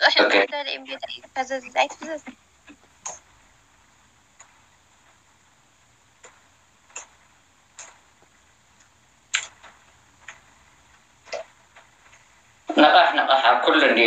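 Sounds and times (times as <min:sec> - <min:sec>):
low hiss: 0:00.0 - 0:14.0
faint clicks: 0:06.2 - 0:12.3.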